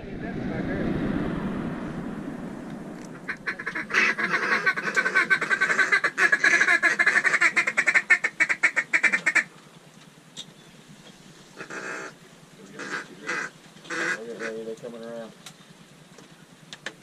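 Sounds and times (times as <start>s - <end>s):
duck call quacking: 3.5s - 9.5s, 12.8s - 14.6s.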